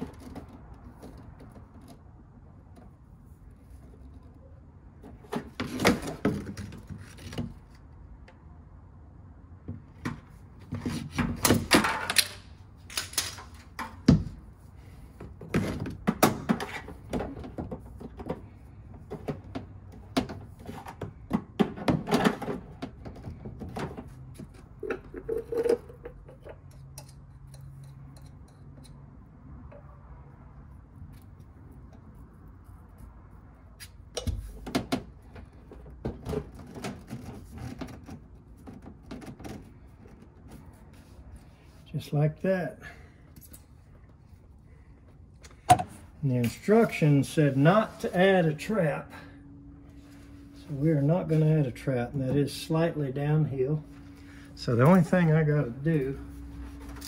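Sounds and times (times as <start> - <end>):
plastic pipe knocks and scraping: 15.2 - 26.6.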